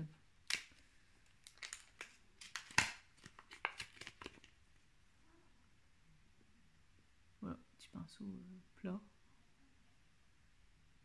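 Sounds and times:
packaging crinkling and tearing: 0:00.4 - 0:04.6.

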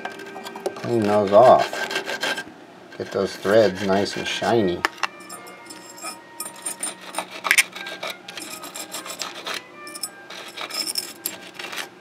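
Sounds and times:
wire brush scrubbing metal threads: 0:03.0 - 0:04.6, 0:05.3 - 0:11.9.

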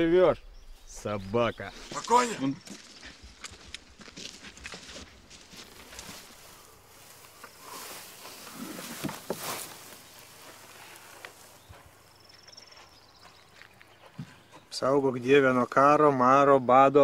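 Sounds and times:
dry hay rustling: 0:03.6 - 0:13.0.

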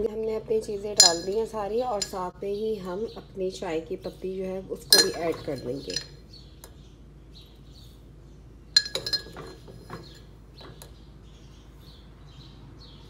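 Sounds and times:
spoon clinking against glass cup: 0:08.8 - 0:10.2.

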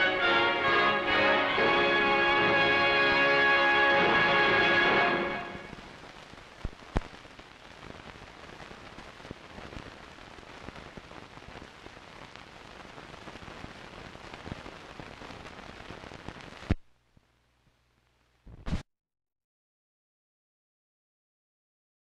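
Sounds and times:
old film soundtrack crackle and hiss: 0:00.0 - 0:18.8
scattered pops: 0:05.7 - 0:16.9.

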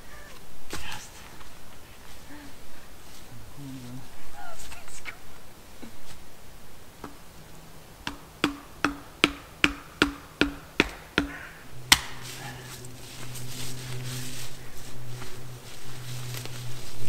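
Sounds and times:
hammer knocks with ringing: 0:08.1 - 0:12.2.

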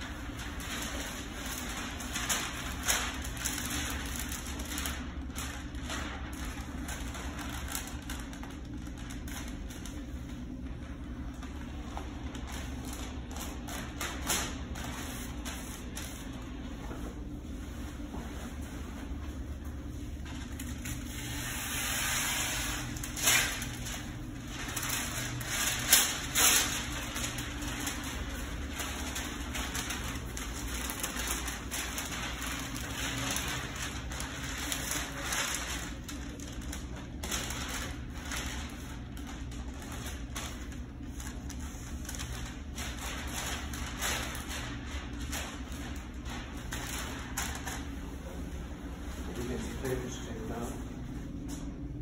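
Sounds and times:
paper crackling and rustling: 0:00.0 - 0:50.7
low shop hum: 0:00.0 - 0:52.0
tape tearing: 0:20.8 - 0:23.8, 0:24.7 - 0:28.0.

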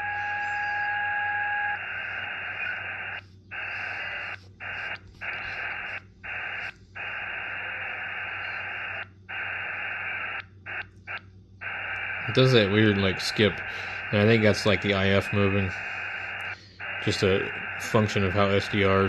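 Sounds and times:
radio receiver hiss: 0:00.0 - 0:19.0
steady radio whistle: 0:00.0 - 0:19.0.

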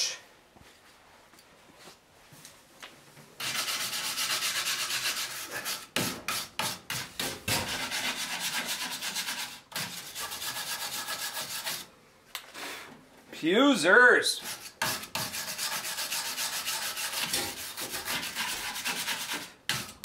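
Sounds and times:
wire brush scrubbing metal: 0:03.4 - 0:11.9, 0:14.4 - 0:20.0.

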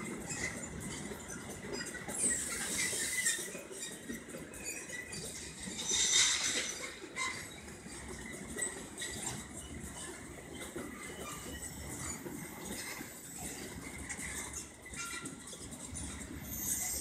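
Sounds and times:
high-pitched wheel squeals: 0:14.2 - 0:17.0.

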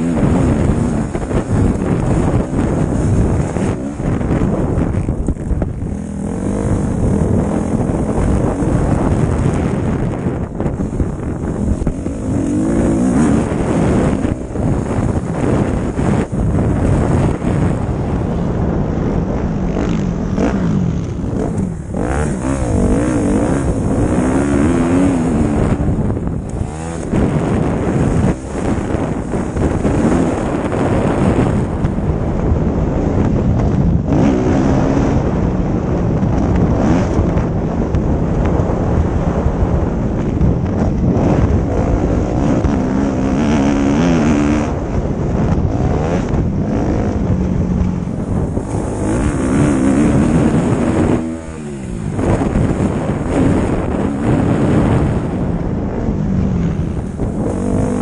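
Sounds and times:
motorbike engine revving: 0:00.0 - 0:58.0
wind rushing over microphone: 0:00.0 - 0:58.0.

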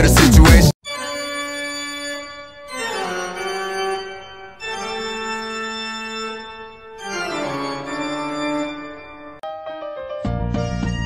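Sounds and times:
held organ-like chords: 0:00.9 - 0:09.4.

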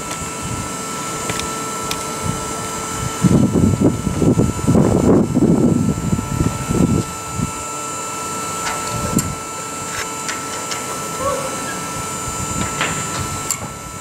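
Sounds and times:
background hiss and hum: 0:00.0 - 0:14.0
constant high tone: 0:06.0 - 0:14.0.

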